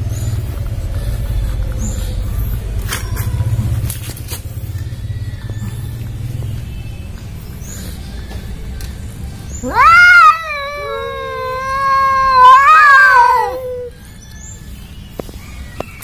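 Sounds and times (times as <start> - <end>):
cat yowling: 9.6 - 14.0.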